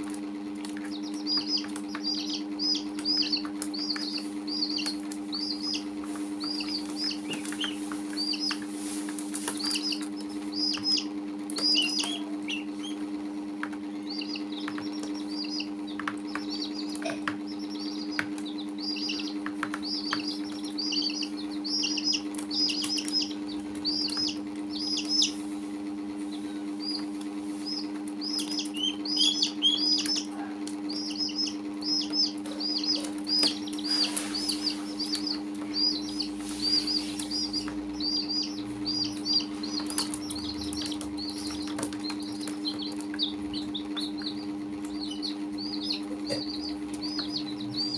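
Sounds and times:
baby chicks cheeping: 0.0s - 47.9s.

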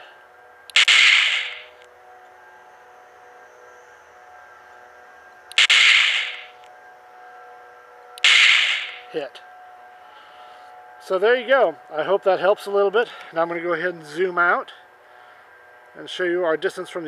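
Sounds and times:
faint steady whine: 0.0s - 17.0s
electronic gunshot effects: 0.7s - 1.8s, 5.5s - 6.6s, 8.2s - 9.1s.

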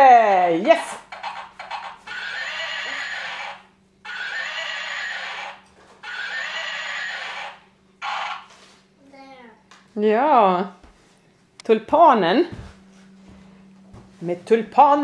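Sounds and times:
toy horse sounds from speaker: 1.1s - 8.4s.

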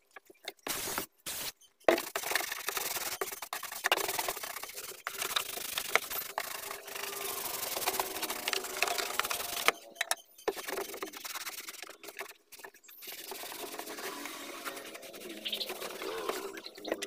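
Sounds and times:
cloth rubbing on plastic: 10.6s - 16.9s.

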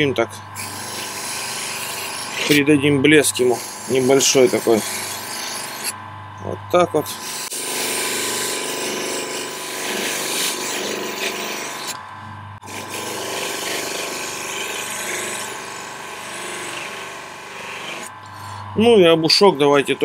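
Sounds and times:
motor hum: 0.0s - 20.0s
blade rubbing on buffing wheel: 3.3s - 6.0s.

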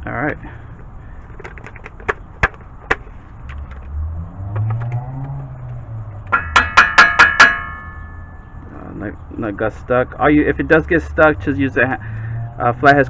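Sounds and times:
ringing metallic taps: 6.2s - 8.6s.

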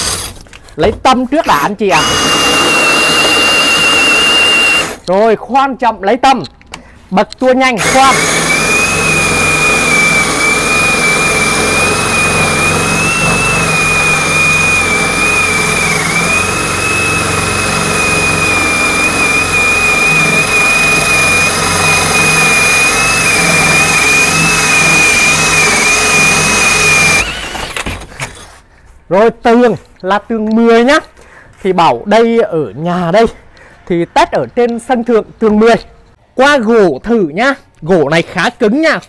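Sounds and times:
cordless drill drilling into brick: 0.0s - 0.4s, 1.9s - 5.1s, 7.8s - 28.4s.

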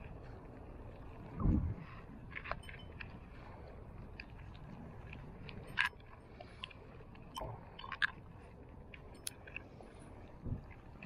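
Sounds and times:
wind rumble on microphone: 0.0s - 11.0s
fishing reel clicks and rustles: 2.2s - 10.2s.

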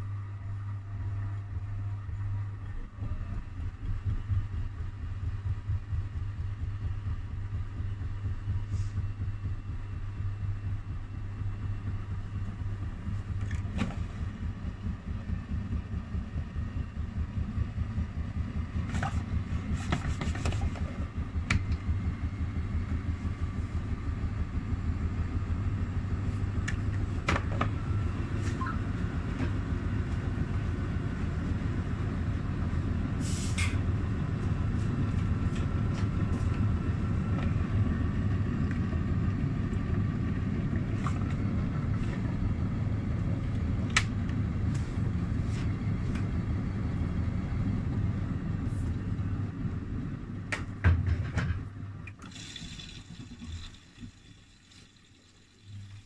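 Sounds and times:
washing machine rumbling: 0.4s - 32.4s
brief hiss: 33.2s - 33.8s.

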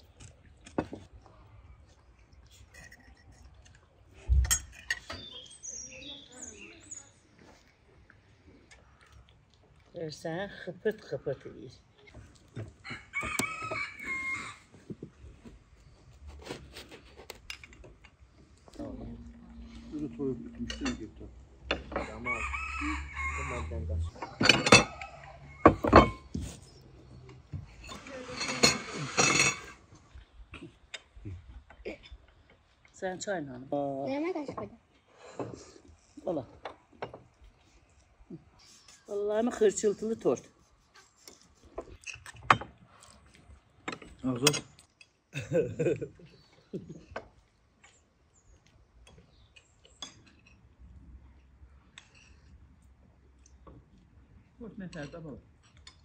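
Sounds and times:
cutlery clinking on plates: 4.4s - 5.3s, 24.2s - 26.4s, 27.8s - 29.8s
clattering and scraping: 24.0s - 30.0s.

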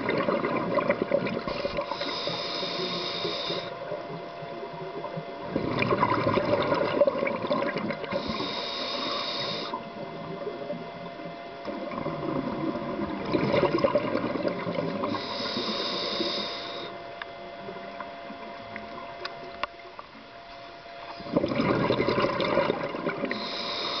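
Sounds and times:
bubbling underwater exhalations: 0.0s - 2.1s, 3.9s - 8.5s, 9.8s - 15.6s, 21.2s - 23.6s
faint steady tone: 0.0s - 24.0s
regulator inhalation hiss: 1.5s - 4.0s, 8.1s - 9.8s, 15.0s - 17.1s, 23.3s - 24.0s.

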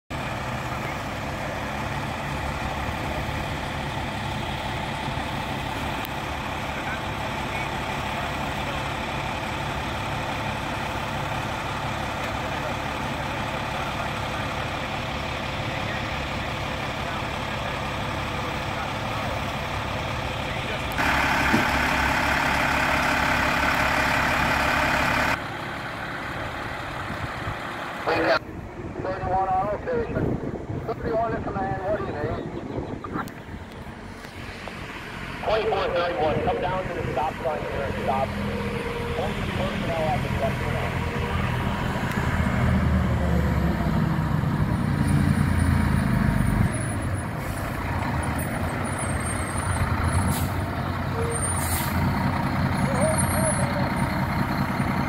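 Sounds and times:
diesel engine idling: 0.1s - 55.0s.

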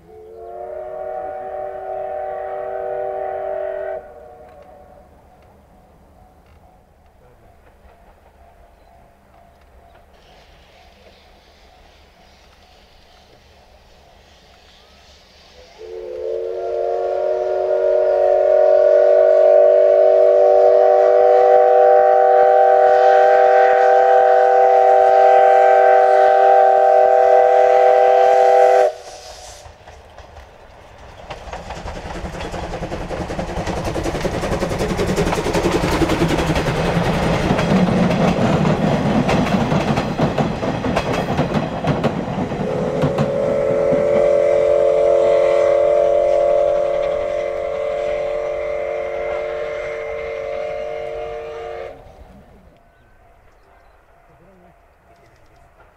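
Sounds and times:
steam whistle chord: 0.0s - 5.2s, 15.6s - 29.7s, 42.6s - 52.2s
wheels clattering on rails: 5.2s - 15.0s, 29.6s - 44.3s.

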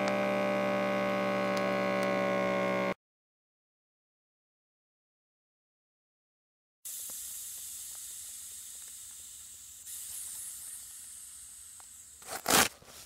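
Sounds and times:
air hissing from arm cuff: 6.9s - 13.0s.

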